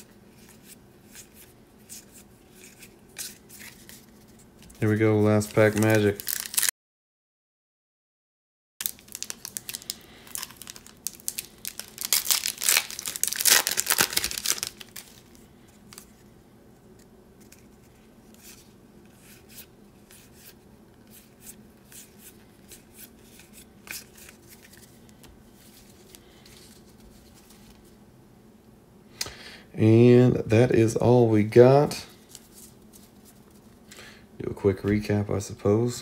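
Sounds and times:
cards clicking and rustling: 0:00.4 - 0:06.7, 0:08.8 - 0:15.3
foil wrapper tearing and crinkling: 0:05.4 - 0:06.7, 0:08.8 - 0:15.4.

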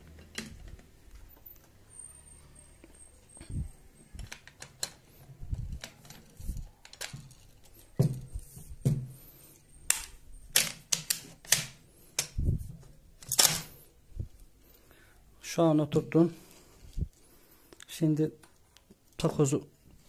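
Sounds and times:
shotgun parts clicking and clacking: 0:09.9 - 0:12.4, 0:13.2 - 0:13.8.

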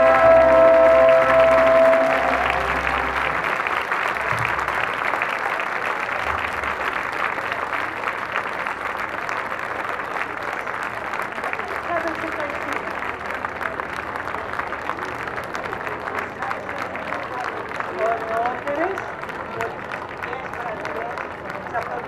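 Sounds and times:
song ending on held note: 0:00.0 - 0:03.6
audience applauding: 0:00.0 - 0:22.0.

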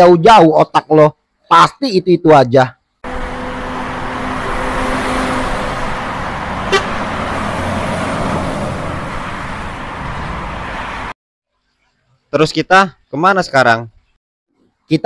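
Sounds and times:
road noise hiss: 0:03.0 - 0:11.1
cars passing: 0:03.0 - 0:11.2
car horn toot: 0:06.6 - 0:07.2.

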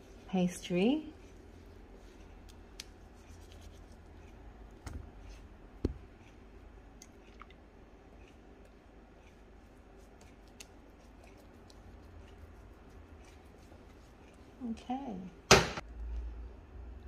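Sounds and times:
pastry brush soft rubbing: 0:00.0 - 0:06.6, 0:08.2 - 0:15.0.

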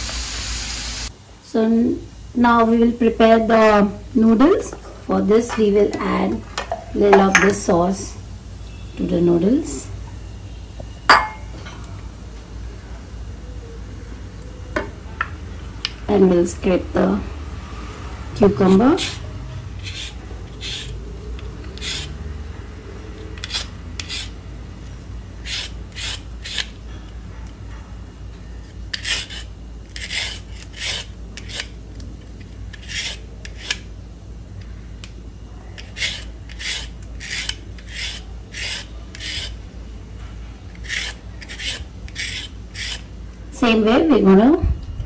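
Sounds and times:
peeler scraping cucumber: 0:18.4 - 0:22.3, 0:23.2 - 0:24.4, 0:25.4 - 0:26.8, 0:28.6 - 0:31.8, 0:32.4 - 0:33.9, 0:35.8 - 0:39.6, 0:40.7 - 0:43.1.

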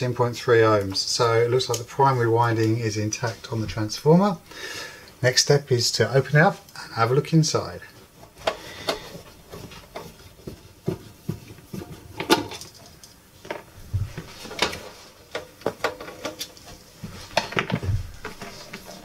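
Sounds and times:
clicks and knocks of handled tools: 0:11.7 - 0:13.7, 0:14.4 - 0:16.8.

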